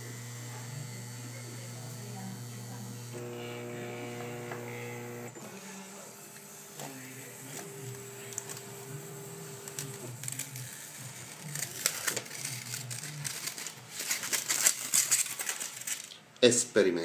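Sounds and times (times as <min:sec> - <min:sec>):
hot-wire cutter buzzing: 0:00.0 - 0:13.1.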